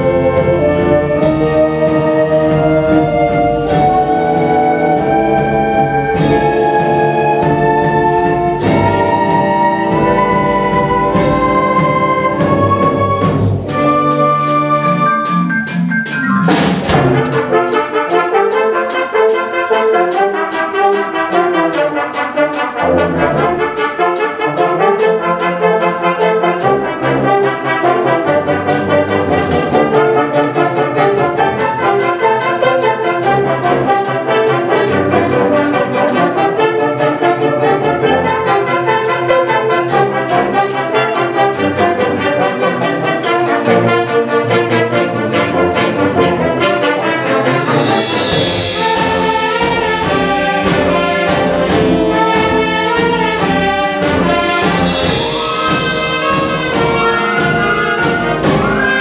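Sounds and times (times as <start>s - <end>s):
concert wind band playing: 0.0s - 59.0s
percussion beat: 2.4s - 59.0s
loud percussion hit: 15.8s - 17.9s, 47.3s - 52.0s, 54.0s - 59.0s.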